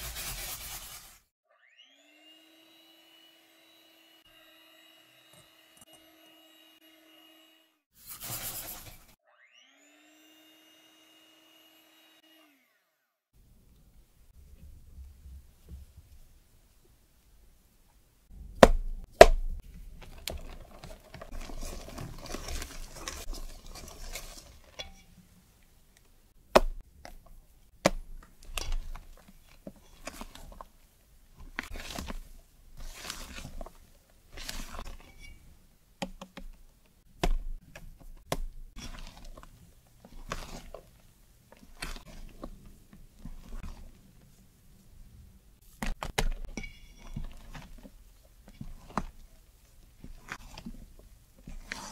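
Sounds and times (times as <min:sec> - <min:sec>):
spatula scraping metal bowl: 0:00.0 - 0:01.2, 0:20.0 - 0:25.2, 0:28.4 - 0:30.7, 0:31.5 - 0:35.5, 0:38.7 - 0:42.6, 0:46.5 - 0:49.3, 0:49.9 - 0:51.9.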